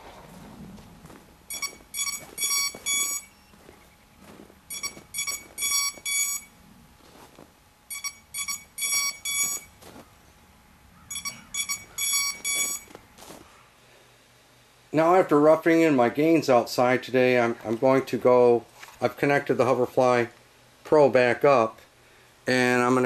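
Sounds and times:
short high electronic beeps: 1.5s - 3.5s, 4.7s - 6.5s, 7.9s - 9.7s, 11.1s - 12.9s.

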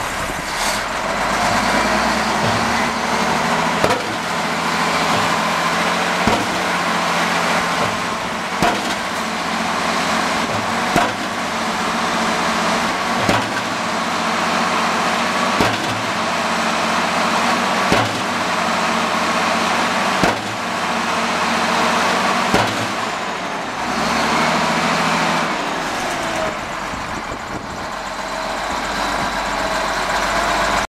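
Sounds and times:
hydraulic hammer pounding ground: 0.0s - 30.8s
diesel engine running: 0.0s - 30.9s.

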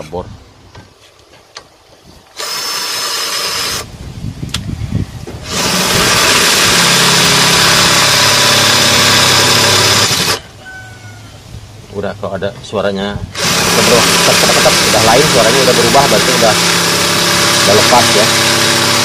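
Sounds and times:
cordless drill drilling: 2.3s - 3.9s, 5.4s - 10.4s, 13.3s - 19.0s.

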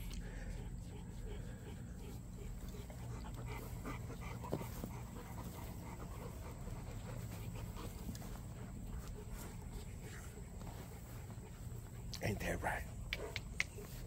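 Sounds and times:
dogs panting: 0.0s - 14.0s.

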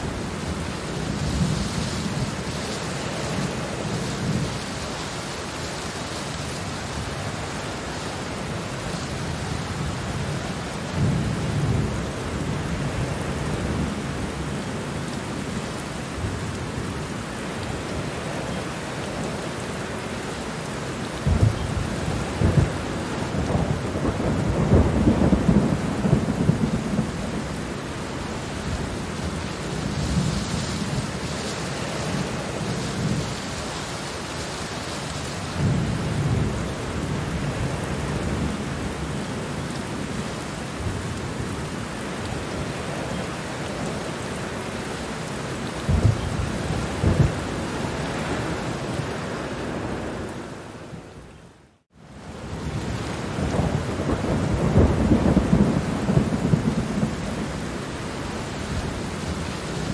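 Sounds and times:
steady rain falling: 0.0s - 59.9s
thunder rumbling: 21.2s - 44.0s, 45.7s - 49.0s, 52.4s - 59.9s.

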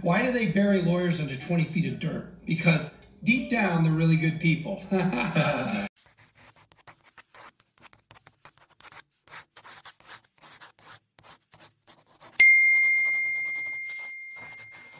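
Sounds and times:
pen scratching on paper: 6.0s - 14.9s.

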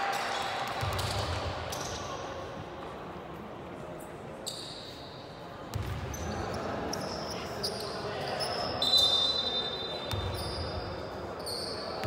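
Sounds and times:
basketball bouncing on court: 5.7s - 6.3s, 10.1s - 10.6s.

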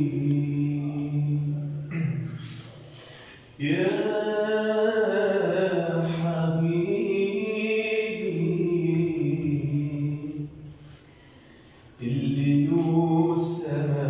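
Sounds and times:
man singing unaccompanied: 0.0s - 1.9s, 3.6s - 10.7s, 12.0s - 14.0s.

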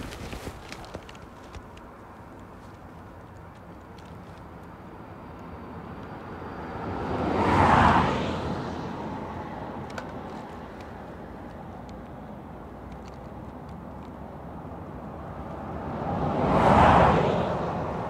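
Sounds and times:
car passing: 4.4s - 11.8s, 14.5s - 18.0s.

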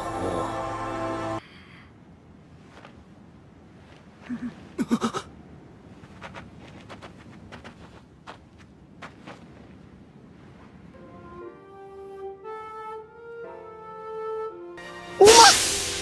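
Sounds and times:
girl's muffled humming: 4.2s - 5.2s, 15.2s - 15.6s.

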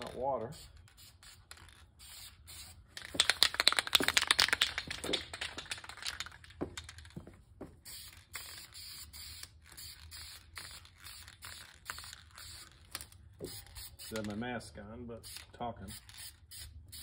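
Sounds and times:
spray can rattling: 0.0s - 14.4s, 15.2s - 17.0s
spray paint hissing: 0.5s - 4.4s, 7.7s - 14.4s, 15.2s - 17.0s.

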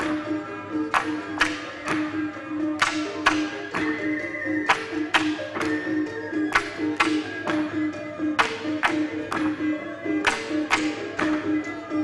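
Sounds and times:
bamboo poles clacking: 0.0s - 12.0s
music with repeating melody: 0.0s - 12.0s.

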